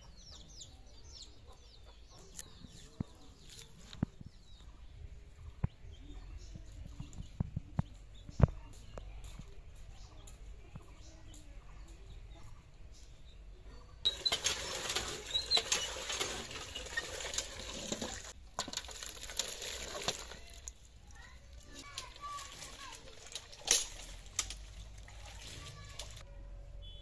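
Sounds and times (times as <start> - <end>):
water gushing into metal bucket: 14.1 - 20.8, 21.7 - 26.2.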